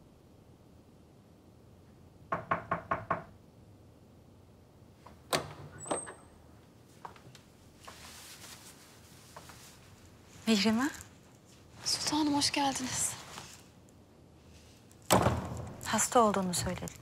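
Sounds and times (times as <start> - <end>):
knocks on a door: 2.3 - 3.4
soft rustle: 6.5 - 15.1.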